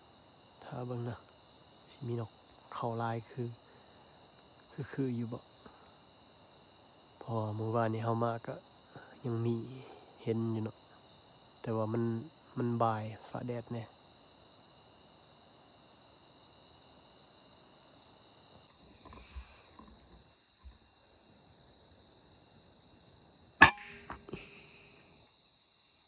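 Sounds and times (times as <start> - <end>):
insects droning: 0.0 - 26.0
rifle shot: 23.6 - 24.3.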